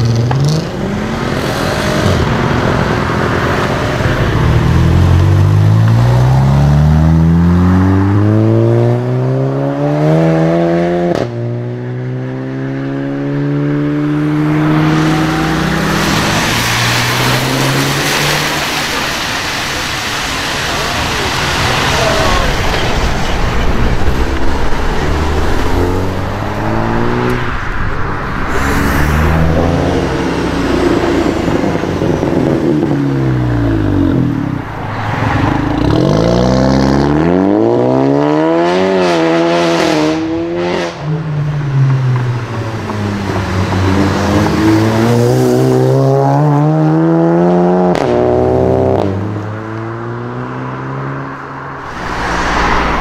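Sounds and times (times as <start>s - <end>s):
car engines accelerating hard: 0.0s - 53.0s.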